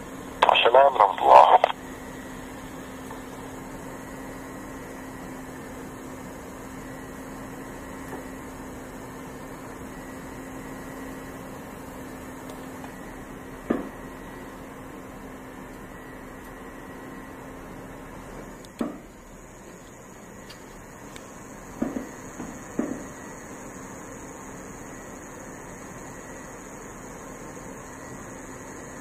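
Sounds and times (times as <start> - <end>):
radio hiss: 0.4 - 1.8.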